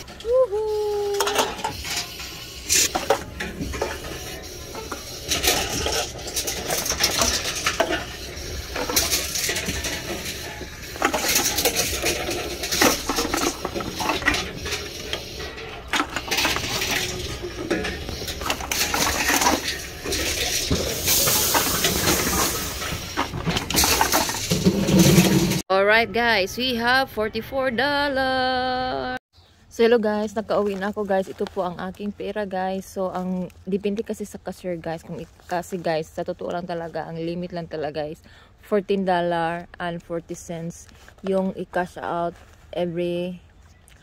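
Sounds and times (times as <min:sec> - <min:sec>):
cans and bottles clattering: 0:01.0 - 0:25.6.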